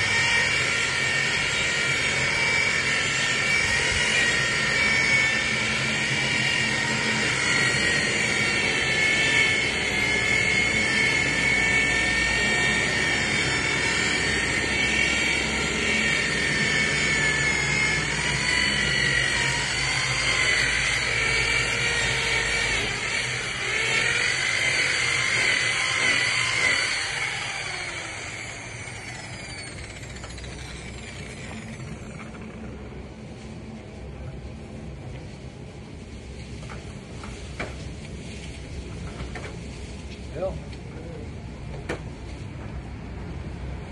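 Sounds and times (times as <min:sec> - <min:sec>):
polisher motor whining: 0:00.0 - 0:33.1.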